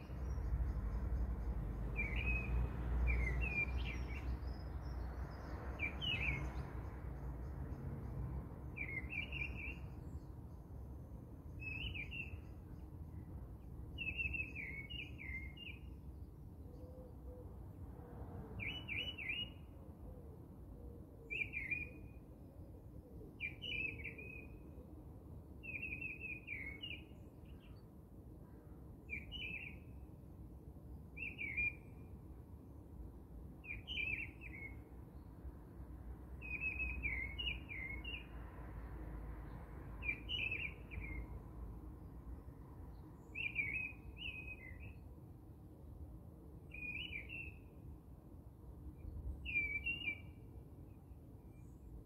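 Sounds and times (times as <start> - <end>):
bird chirping: 0.0 - 7.8, 8.7 - 10.6, 11.5 - 13.3, 14.0 - 16.9, 18.6 - 19.7, 29.1 - 30.0, 33.6 - 35.3, 36.4 - 38.3, 40.0 - 41.4, 42.9 - 45.1, 46.7 - 47.8, 49.0 - 51.9.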